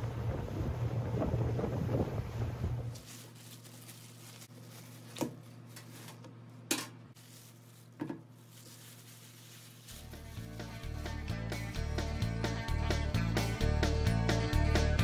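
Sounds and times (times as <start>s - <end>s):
plastic bag crinkling: 2.9s - 6.3s, 7.2s - 10.8s.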